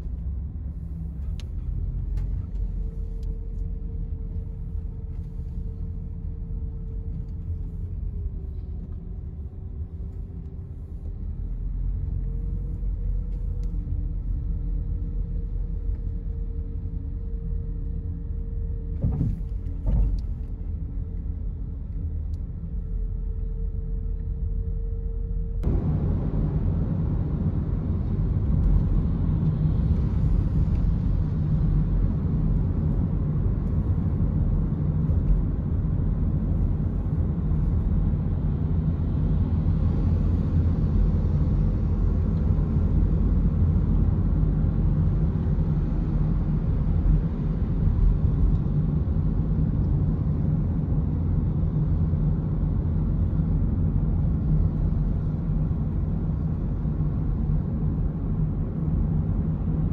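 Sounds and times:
car engine at highway speed: 0:00.0 - 0:59.9.

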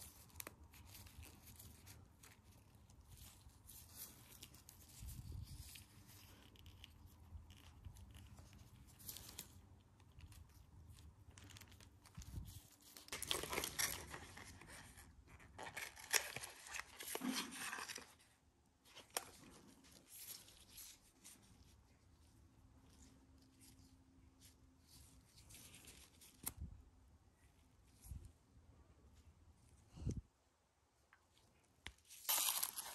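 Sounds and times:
plastic crinkling and rustling: 0:00.0 - 0:22.0, 0:31.9 - 0:32.9.

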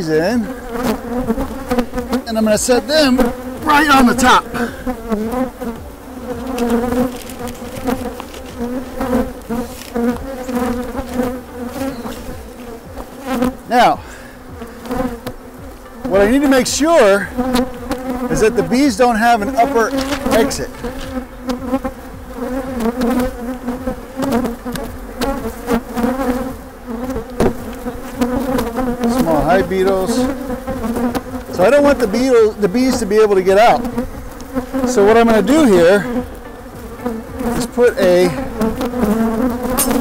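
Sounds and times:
bees buzzing: 0:00.0 - 0:40.0
sharp knocks: 0:27.4 - 0:27.7.

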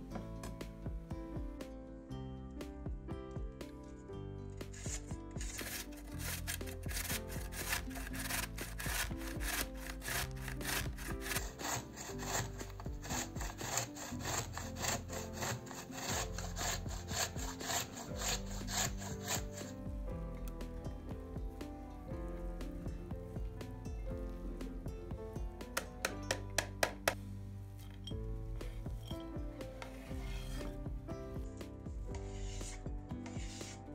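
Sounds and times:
zucchini grated on metal grater: 0:04.7 - 0:19.8.

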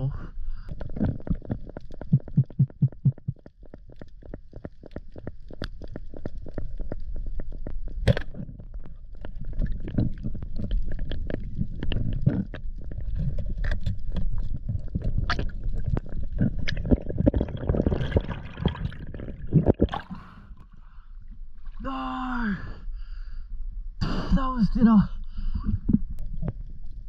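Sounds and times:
sharp underwater clicks and crackles: 0:00.6 - 0:21.7, 0:25.8 - 0:27.0
low underwater rumble: 0:00.8 - 0:21.8.

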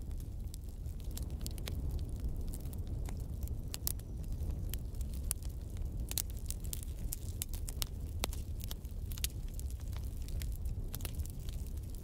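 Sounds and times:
low fire rumble: 0:00.0 - 0:12.0
wood fire crackling: 0:00.0 - 0:12.0.

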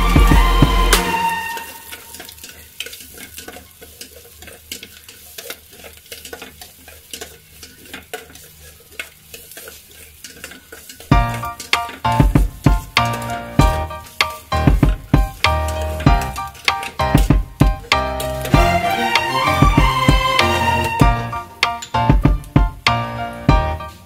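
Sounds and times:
music: 0:00.0 - 0:02.3, 0:11.1 - 0:24.0
spatula scraping metal pot: 0:00.0 - 0:22.1
onion sizzling in oil: 0:00.0 - 0:24.0.

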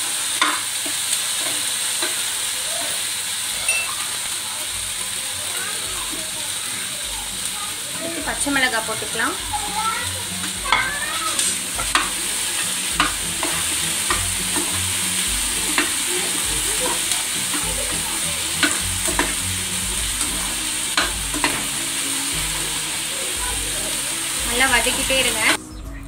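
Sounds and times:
vegetables sizzling in hot oil: 0:00.0 - 0:25.6
metal spatula scraping a pan: 0:10.4 - 0:21.8.

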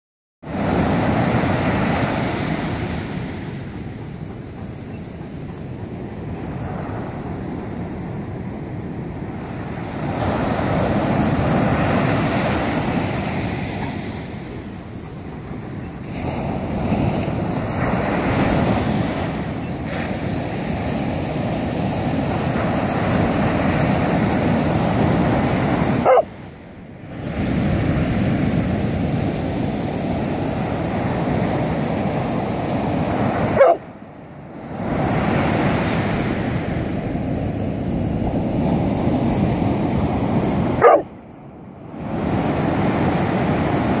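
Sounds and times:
ocean surf breaking: 0:00.4 - 0:44.0
dog whining: 0:26.0 - 0:26.3, 0:40.8 - 0:41.1.

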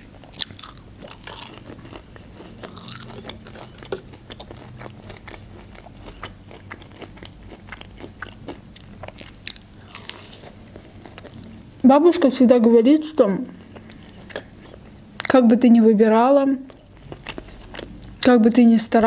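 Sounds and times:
chewing chicken nugget: 0:00.2 - 0:11.6, 0:16.7 - 0:18.3
crunch of a bite: 0:00.4 - 0:08.1.

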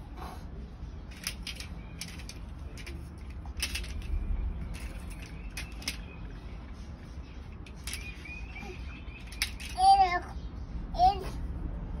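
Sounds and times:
toy tractor clicking on tiled floor: 0:01.1 - 0:06.1, 0:07.6 - 0:08.2, 0:09.2 - 0:09.9.

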